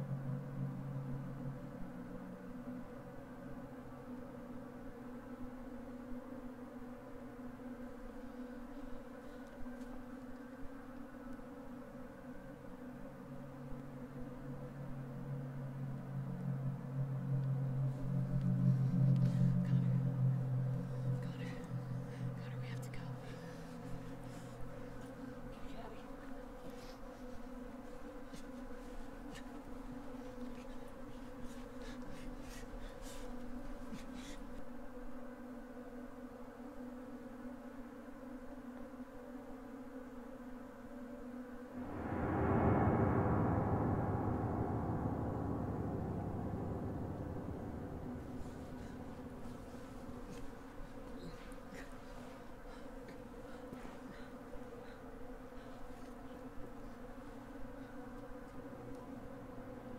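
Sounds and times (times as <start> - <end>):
low buzzing hum: 0.0 - 40.9, 41.6 - 59.9
soft breathy rustles: 48.9 - 56.4.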